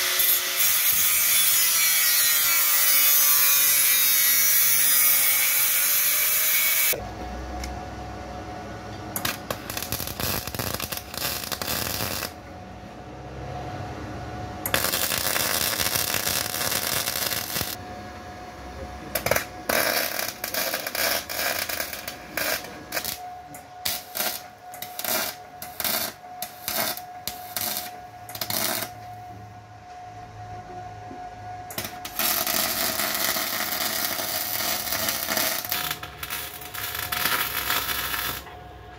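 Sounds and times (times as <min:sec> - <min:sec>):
welder arc crackling: 0:09.2 - 0:12.4, 0:14.7 - 0:17.8, 0:19.2 - 0:23.2, 0:23.8 - 0:29.0, 0:31.7 - 0:38.5.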